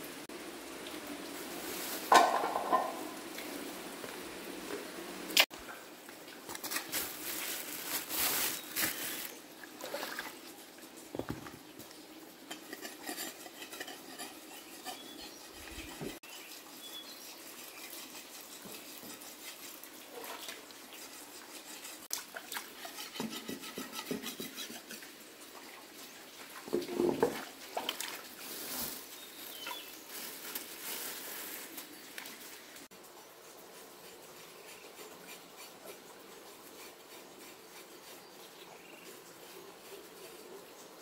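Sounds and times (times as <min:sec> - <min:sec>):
water splashing and sloshing: 0:00.8 - 0:14.2, 0:18.1 - 0:33.0
metal clinking and scraping on stone: 0:12.4 - 0:16.2.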